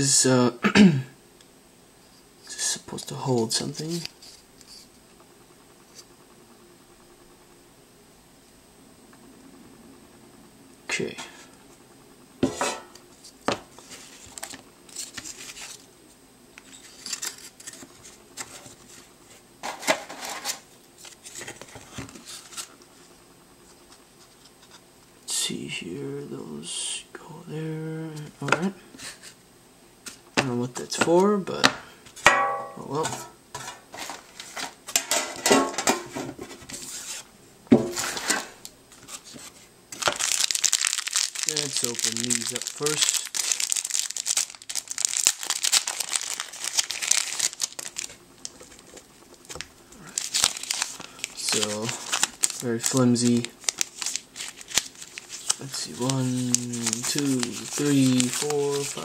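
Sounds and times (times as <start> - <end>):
ringing knock on tin: 32.3 - 32.8.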